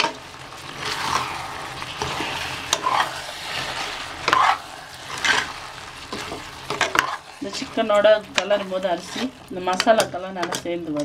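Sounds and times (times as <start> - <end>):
masala sizzling: 0.0 - 11.0
metal ladle scraping pot: 0.8 - 7.6.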